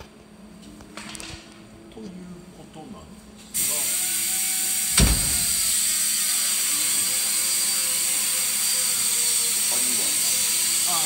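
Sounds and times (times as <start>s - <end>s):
workshop machinery hissing: 3.4s - 11.0s.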